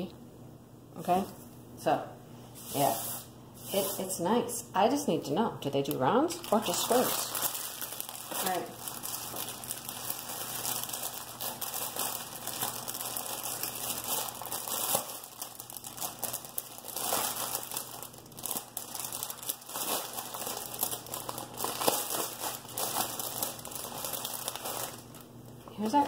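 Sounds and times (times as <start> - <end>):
plastic bag crinkling: 5.9 - 26.0.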